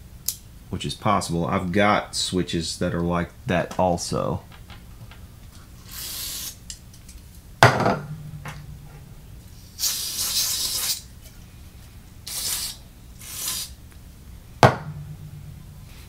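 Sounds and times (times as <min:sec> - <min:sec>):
aerosol spray hissing: 0:05.8 - 0:06.6, 0:09.7 - 0:11.1, 0:12.3 - 0:13.8.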